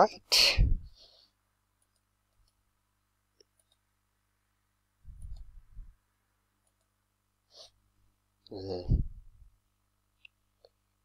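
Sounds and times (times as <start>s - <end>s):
computer mouse clicks: 1.8s - 2.6s, 3.4s - 3.9s, 5.1s - 5.6s, 6.6s - 7.0s.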